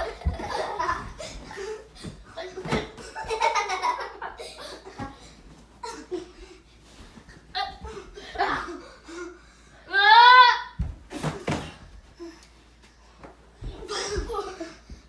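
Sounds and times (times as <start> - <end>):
bodies thudding on couch: 0.0 - 3.4, 10.8 - 12.1
boys laughing: 0.0 - 6.6, 7.6 - 9.4, 13.7 - 15.0.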